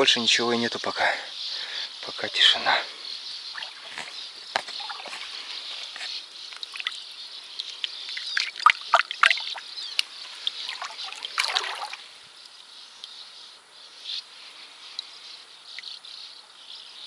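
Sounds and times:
crickets chirring: 0.0 - 17.0
shallow water splashing: 3.4 - 12.2.

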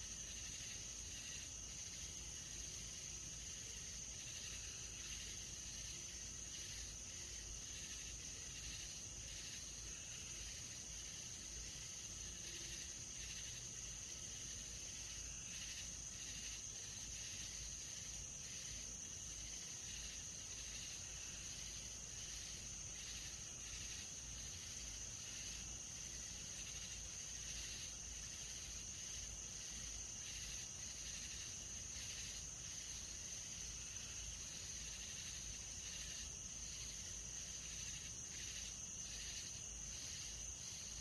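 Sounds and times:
high-pitched insect trill: 0.0 - 41.0.

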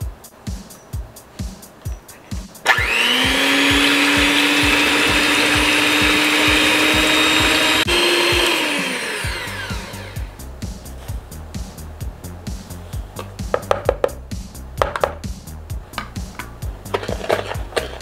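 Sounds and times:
background music with steady beat: 0.0 - 18.0
electric mixer whining: 2.6 - 10.4.

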